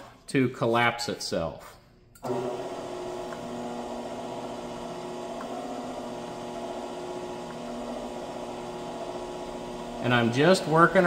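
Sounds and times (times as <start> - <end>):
power hammer electric hum: 2.2 - 11.0.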